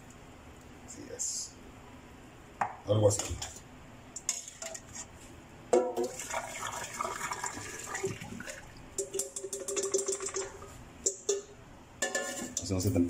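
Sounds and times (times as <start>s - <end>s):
water pouring into sink: 6.0s - 10.6s.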